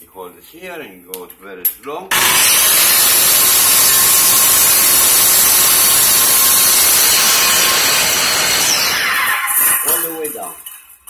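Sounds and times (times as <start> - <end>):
circular saw cutting plastic: 2.1 - 10.2.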